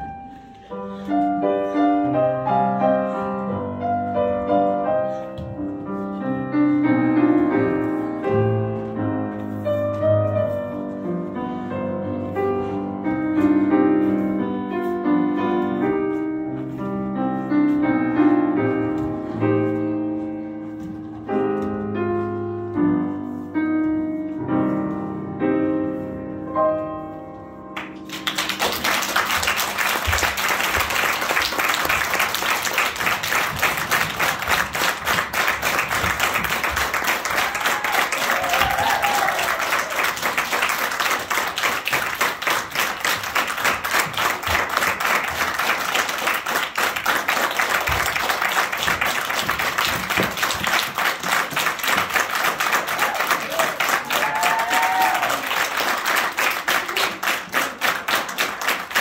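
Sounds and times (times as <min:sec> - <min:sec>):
audience applauding: 0:27.8 - 0:59.0.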